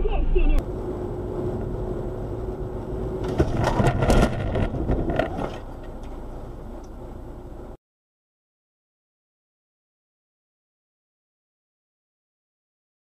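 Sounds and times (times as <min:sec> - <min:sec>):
quiet rumble: 0:00.0 - 0:07.8
road and engine noise: 0:00.0 - 0:07.8
car collision impacts: 0:03.2 - 0:06.2.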